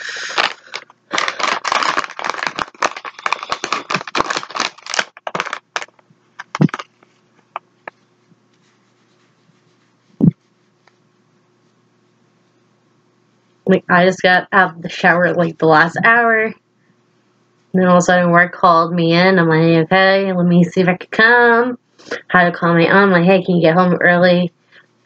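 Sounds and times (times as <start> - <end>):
rustling and crinkling of handling: 0.0 - 12.6.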